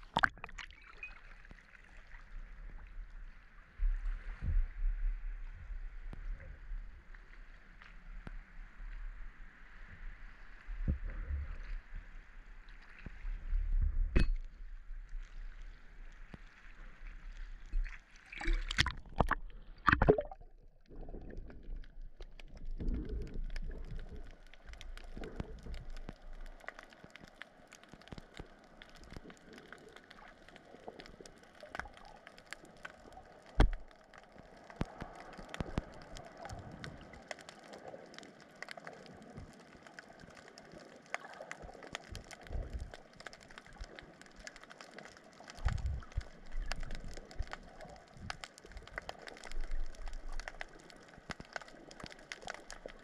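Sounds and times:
splashing and gurgling: 0:00.0 - 0:02.4, 0:16.7 - 0:27.1
faint clicks: 0:21.4 - 0:53.0.

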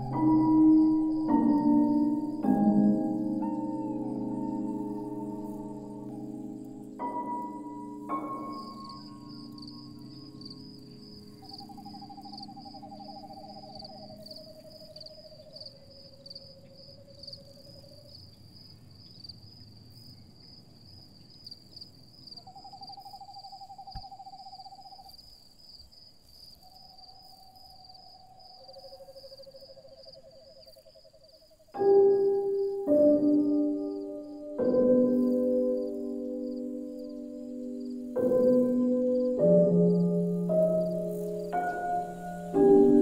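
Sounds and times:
high pulsing chirp: 0:00.0 - 0:16.7, 0:31.8 - 0:43.0
owl-like hooting tones: 0:11.4 - 0:15.5.

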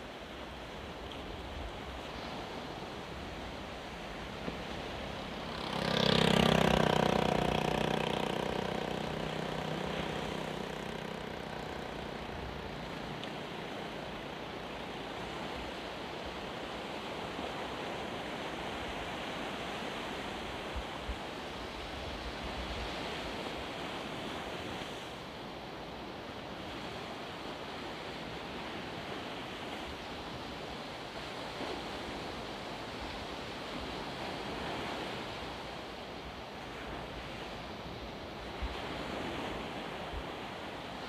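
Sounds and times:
breaking surf: 0:01.8 - 0:20.3
vehicle engine passing by: 0:03.6 - 0:15.8.

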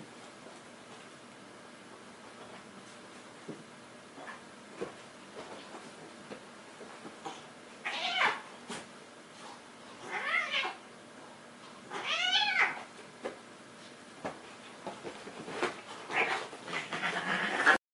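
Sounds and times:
cats meowing: 0:07.8 - 0:08.4, 0:10.0 - 0:10.8, 0:11.9 - 0:12.8.

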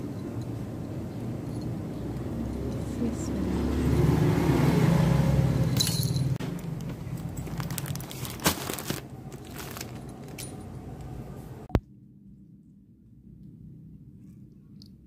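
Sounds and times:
plastic packaging rustling: 0:06.6 - 0:10.6.

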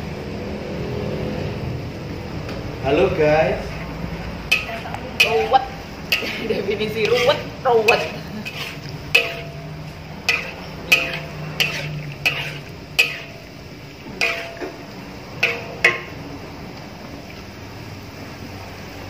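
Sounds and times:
metal spatula knocking on pot: 0:04.5 - 0:16.2.

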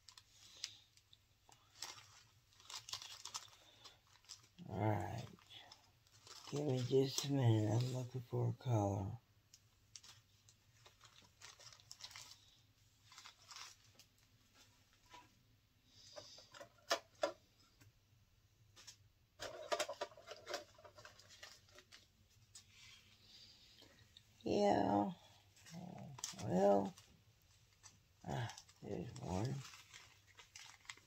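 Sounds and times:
plastic bags rustling: 0:00.0 - 0:08.0, 0:09.7 - 0:15.2, 0:18.8 - 0:22.9, 0:25.4 - 0:31.0.

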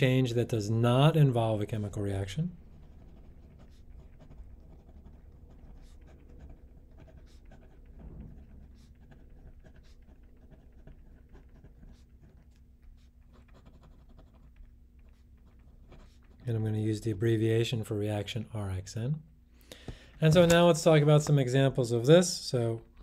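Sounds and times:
low steady hum: 0:00.0 - 0:23.0
pen scratching on paper: 0:01.0 - 0:16.5.

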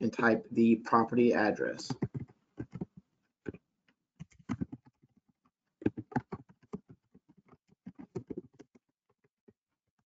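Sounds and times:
typing on computer keyboard: 0:01.9 - 0:03.6, 0:04.2 - 0:05.2, 0:05.8 - 0:09.4.

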